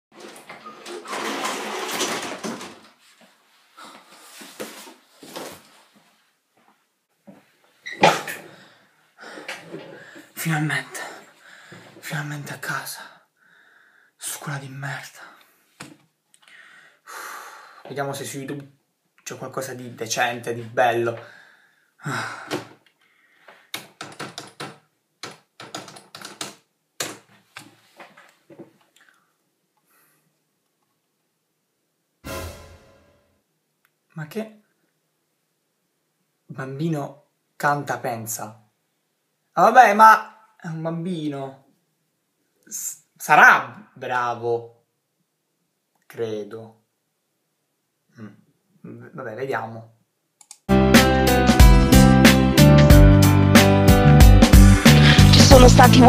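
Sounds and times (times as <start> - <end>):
typing on computer keyboard: 23.8 - 27.2.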